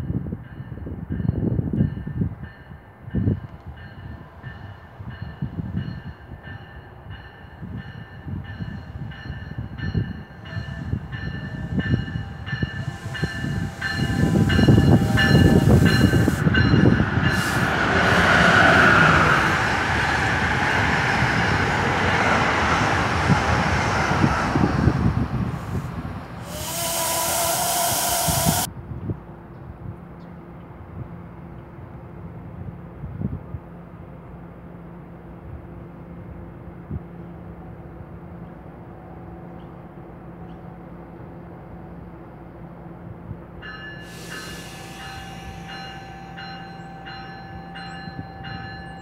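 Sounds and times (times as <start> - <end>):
train bell ringing: 0.0 - 17.7, 43.6 - 49.0
train wheels rumbling on rail: 0.0 - 49.0
rushing air: 10.1 - 28.7, 44.0 - 46.7
loud air hiss: 11.5 - 18.5, 25.5 - 28.7, 44.0 - 46.2.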